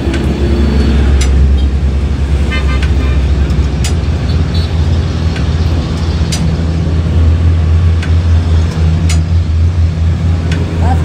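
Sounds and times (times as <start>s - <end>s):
engine humming: 0.0s - 11.0s
sharp clicks: 1.1s - 1.6s.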